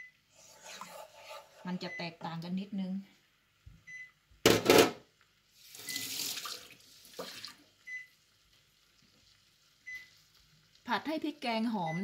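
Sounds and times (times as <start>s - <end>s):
tap water running: 5.6s - 7.8s.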